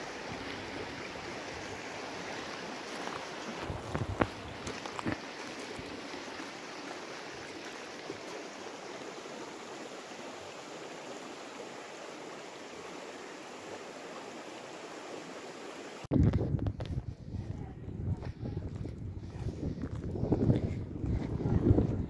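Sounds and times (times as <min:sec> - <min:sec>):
stream flowing over stones: 0:00.0 - 0:16.1
wind buffeting microphone: 0:03.6 - 0:05.2, 0:16.1 - 0:22.0.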